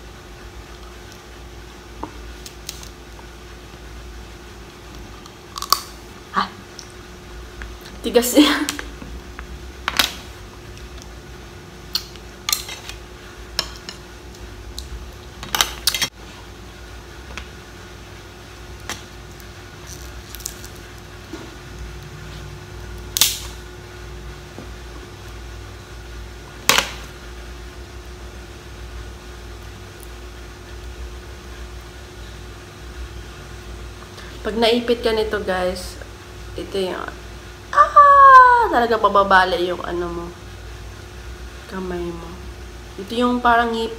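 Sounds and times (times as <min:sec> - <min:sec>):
faint steady hum: 0:00.0 - 0:43.9
crab shell cracking: 0:05.3 - 0:06.0, 0:18.8 - 0:21.0, 0:23.1 - 0:23.6.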